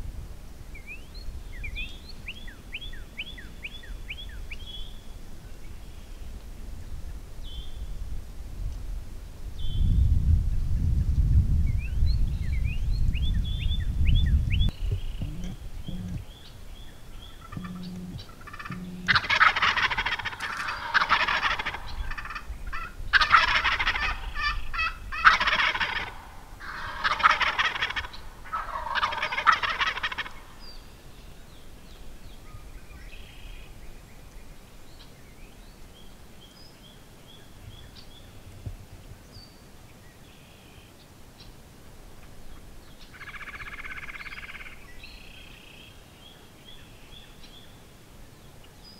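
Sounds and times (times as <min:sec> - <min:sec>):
songbird chirps: 0:00.6 - 0:08.1, 0:09.6 - 0:48.9
low rumble: 0:09.9 - 0:19.5
turkey gobbling: 0:14.8 - 0:16.3, 0:17.2 - 0:30.6, 0:43.1 - 0:44.7.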